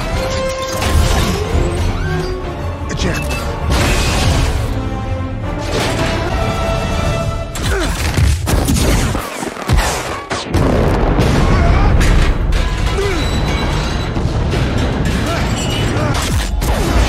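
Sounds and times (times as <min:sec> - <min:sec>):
dramatic music: 0:00.0 - 0:17.0
explosions: 0:08.3 - 0:17.0.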